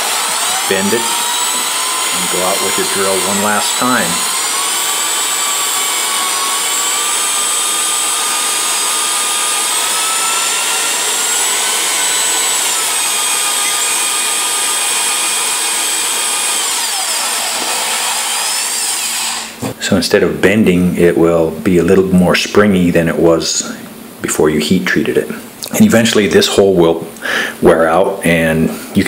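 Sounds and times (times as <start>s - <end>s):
electric drill whining: 0.0s - 19.6s.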